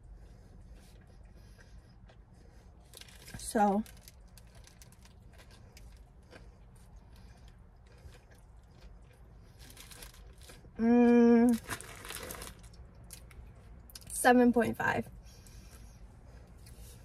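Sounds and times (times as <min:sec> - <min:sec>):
soft chewing: 0:00.0 - 0:10.8, 0:15.2 - 0:17.0
paper wrapper crinkling: 0:03.0 - 0:05.9, 0:11.5 - 0:12.8
person humming mmm: 0:10.8 - 0:11.6.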